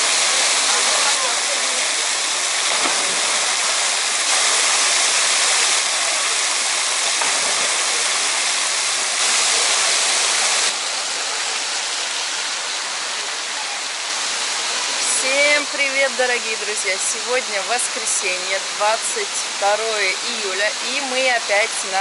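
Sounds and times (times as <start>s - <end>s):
water jet pouring into pool: 0.0s - 15.5s.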